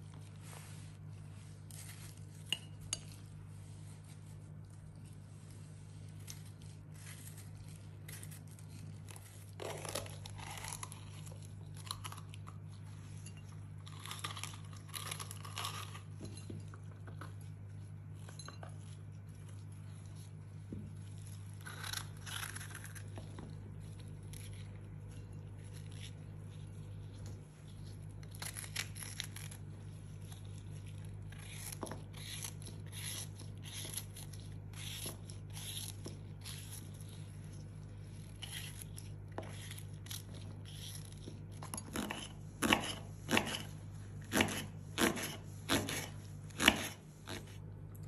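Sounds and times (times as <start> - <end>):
steady low hum: 0.0 - 48.0
knife slicing peppers: 38.4 - 47.6
knife chopping on cutting board: 41.9 - 47.5.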